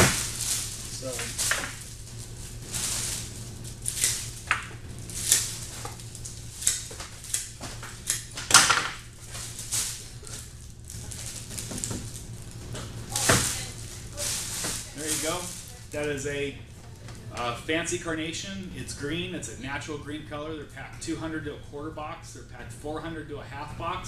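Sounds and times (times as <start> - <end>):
flowers rustling: 0.0 - 8.4, 9.0 - 17.3
steady low hum: 0.0 - 24.0
stems being snipped: 5.2 - 8.3.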